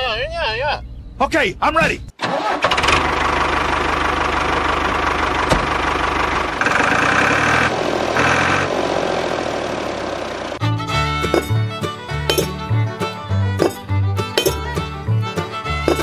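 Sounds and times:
engine starting and running: 2.2s - 10.6s.

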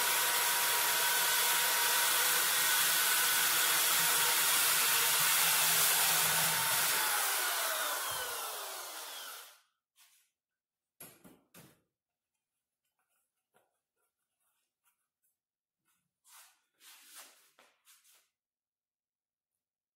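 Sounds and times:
electric drill drilling steel: 0.0s - 9.6s.

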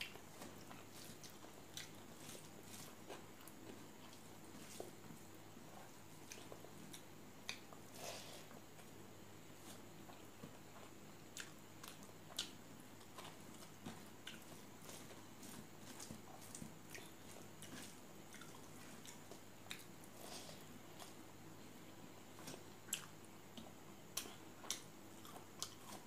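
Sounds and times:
chewing with wet mouth smacks: 0.0s - 5.0s, 5.7s - 7.8s, 10.1s - 21.2s, 22.3s - 26.0s
fingers squishing food: 6.0s - 7.9s, 9.6s - 20.2s, 22.3s - 26.0s.

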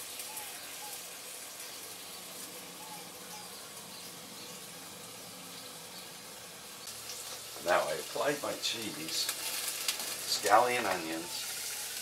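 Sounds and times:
steak sizzling on a griddle: 0.0s - 12.0s.

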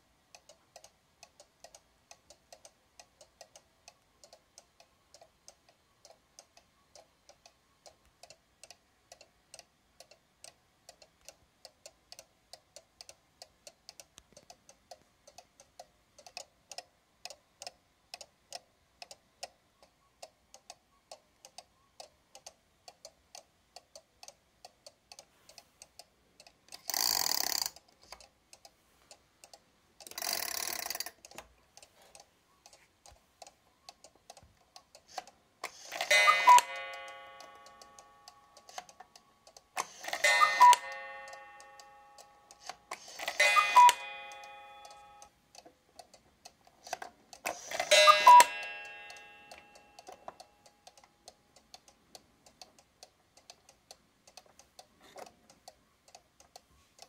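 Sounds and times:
clock ticking: 0.0s - 57.0s
clock chain rattling: 26.8s - 27.8s, 30.0s - 31.2s, 35.6s - 37.8s, 47.4s - 50.2s.

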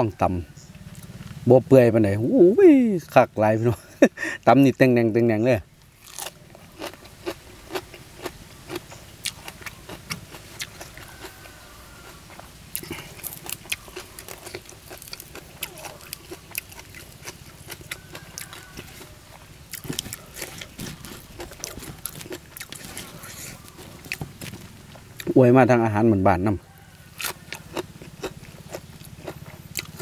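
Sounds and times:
crunchy chewing: 5.8s - 25.4s, 26.5s - 30.0s.

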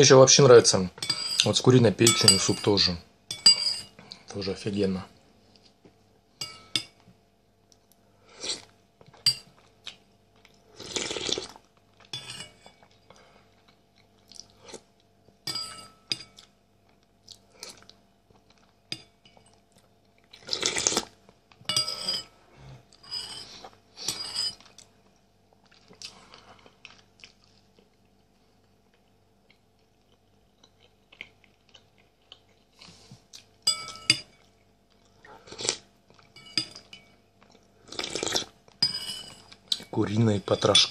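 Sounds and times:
metal spoon clinking bowl: 1.0s - 3.9s, 6.4s - 7.0s, 9.2s - 9.6s, 12.1s - 12.8s, 15.4s - 16.5s, 18.9s - 19.5s, 21.7s - 22.3s, 23.0s - 24.7s, 33.6s - 34.5s, 36.4s - 37.2s, 38.8s - 40.9s.

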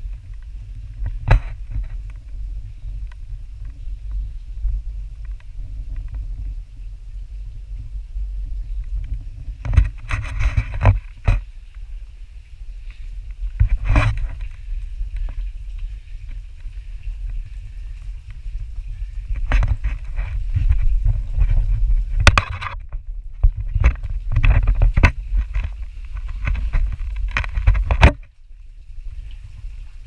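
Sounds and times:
pole scraping and knocking on rock: 0.0s - 2.4s, 8.8s - 11.8s, 12.8s - 28.3s
low rumble of handling noise: 0.0s - 30.0s.

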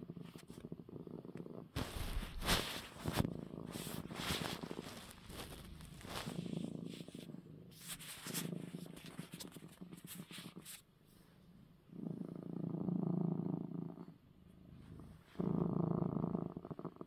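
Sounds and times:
cat purring: 0.0s - 17.0s
handling rustling: 1.8s - 7.2s.

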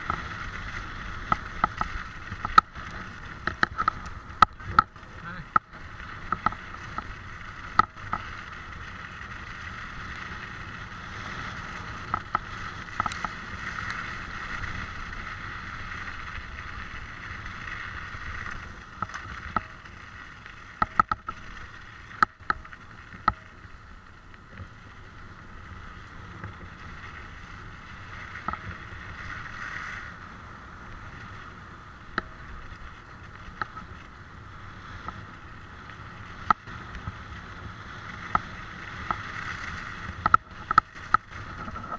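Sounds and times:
knocks and rattles over bumps: 0.0s - 9.2s
wheels rolling on frozen track: 0.0s - 41.9s.

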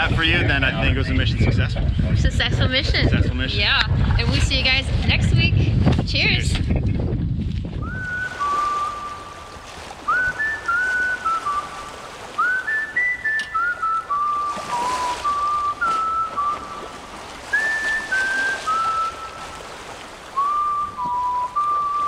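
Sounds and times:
whistled melody: 7.8s - 19.7s, 20.4s - 22.0s.

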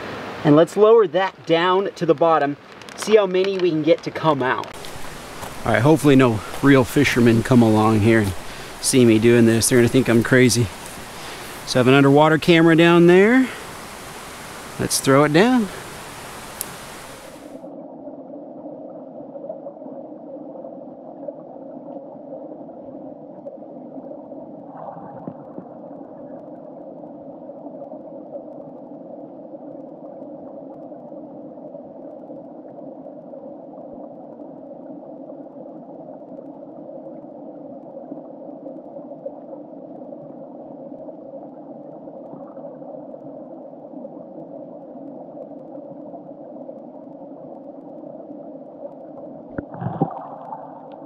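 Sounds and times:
muffled creek water rushing: 0.0s - 17.8s, 49.2s - 51.0s.

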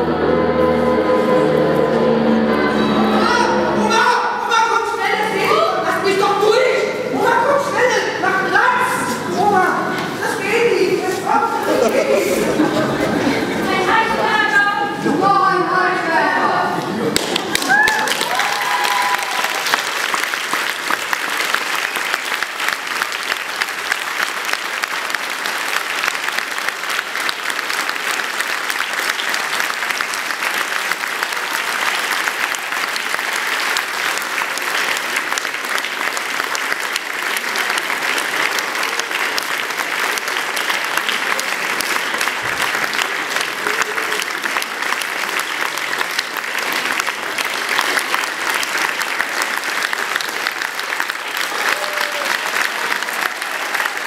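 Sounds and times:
audience applauding: 16.8s - 54.0s.

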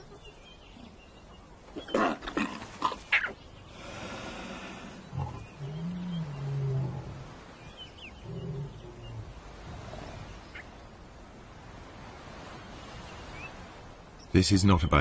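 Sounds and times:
lionesses growling low: 3.7s - 10.4s.

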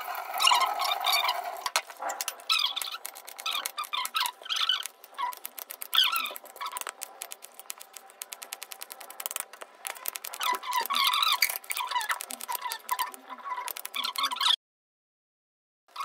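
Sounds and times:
short squeaky sounds: 10.3s - 14.6s.

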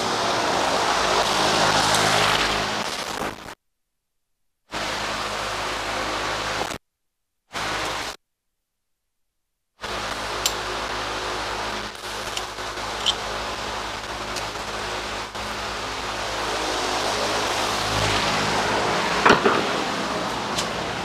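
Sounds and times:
outdoor background noise: 0.0s - 3.6s, 4.7s - 6.8s, 9.8s - 21.0s.

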